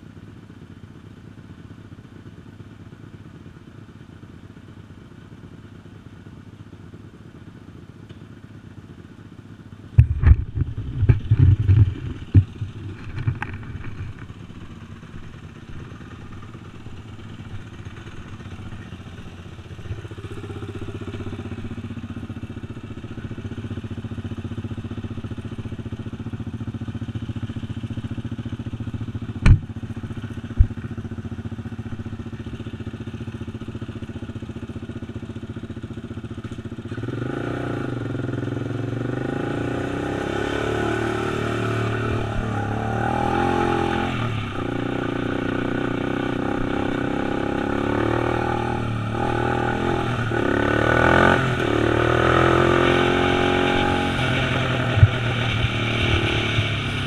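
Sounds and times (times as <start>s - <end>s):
quad engine: 0.0s - 57.0s.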